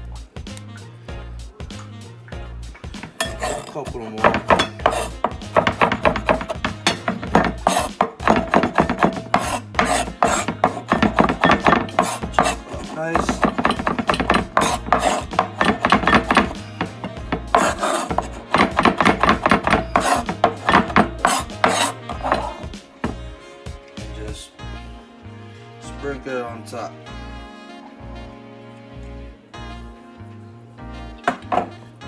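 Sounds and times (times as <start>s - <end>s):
cleaver chopping on wooden board: 3.0s - 23.2s, 31.3s - 31.8s.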